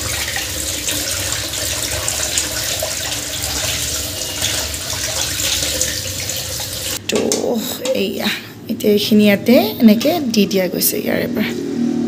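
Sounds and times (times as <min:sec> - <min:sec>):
tap water splashing into sink: 0:00.0 - 0:07.0.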